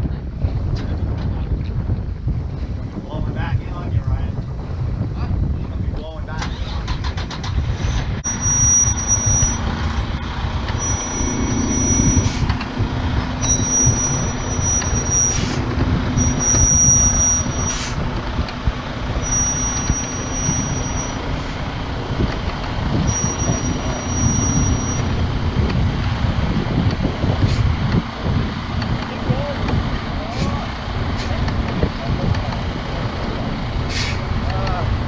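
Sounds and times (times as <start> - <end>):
truck engine running: 0.0 - 35.0
high-pitched squeal: 6.3 - 26.4.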